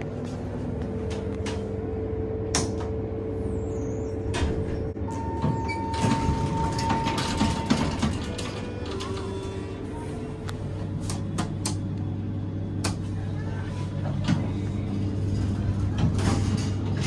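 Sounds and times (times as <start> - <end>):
low hum: 0.0 - 17.0
elevator doors sliding open: 2.4 - 11.9, 12.7 - 17.0.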